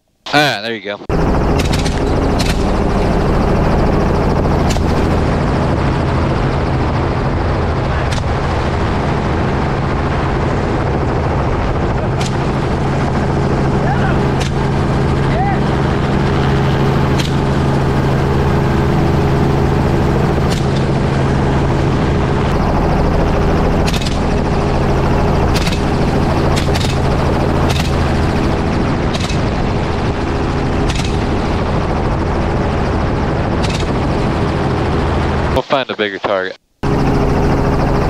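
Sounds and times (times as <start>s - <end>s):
helicopter running overhead: 0.4s - 38.0s.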